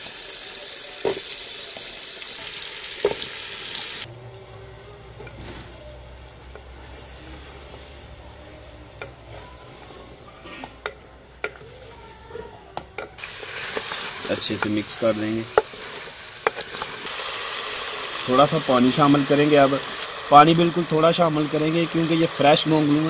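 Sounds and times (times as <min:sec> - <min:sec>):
vegetables sizzling in oil: 0:00.0 - 0:04.1, 0:13.2 - 0:23.0
wooden spoon stirring: 0:06.3 - 0:17.1.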